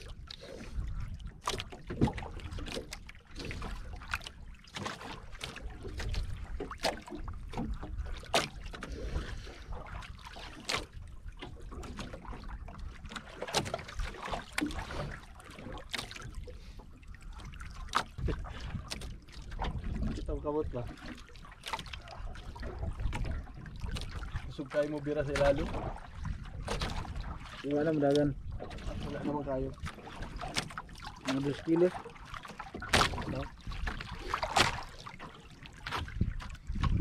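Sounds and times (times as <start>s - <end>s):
water slapping against boat: 0.0s - 37.0s
wind on microphone: 17.4s - 21.0s, 22.3s - 30.4s, 35.9s - 37.0s.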